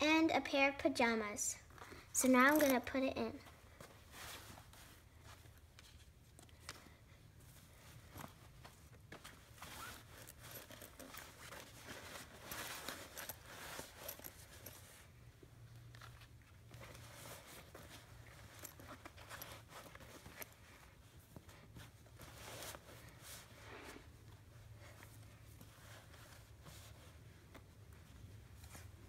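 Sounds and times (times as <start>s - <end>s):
cloth rustling into a pouch: 3.4s - 29.0s
light clicks of pouch handling: 3.8s - 23.2s.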